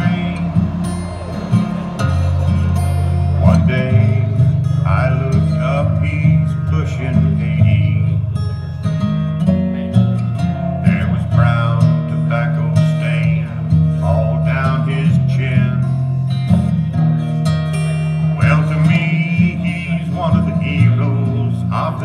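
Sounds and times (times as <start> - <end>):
man singing: 0.0 - 0.9, 2.4 - 8.4, 10.6 - 16.1, 18.1 - 22.0
acoustic guitar strumming: 0.0 - 22.0.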